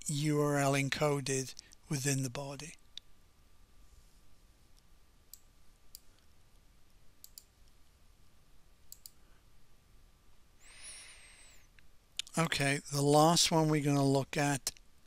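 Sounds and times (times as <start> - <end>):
soft hiss: 0.0 - 15.0
computer mouse clicks: 7.2 - 7.8, 8.9 - 9.2.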